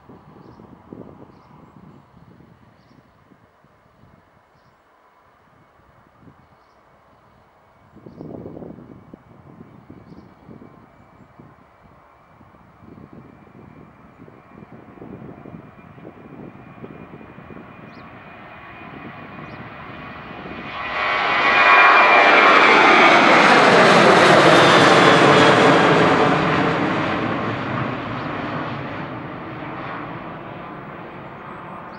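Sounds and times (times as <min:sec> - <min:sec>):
jet airliner taking off: 0:08.5 - 0:31.9.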